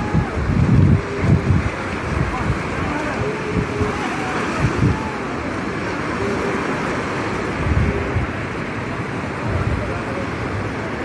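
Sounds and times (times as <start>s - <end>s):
surf breaking on beach: 0.0s - 11.0s
wind buffeting microphone: 0.0s - 11.0s.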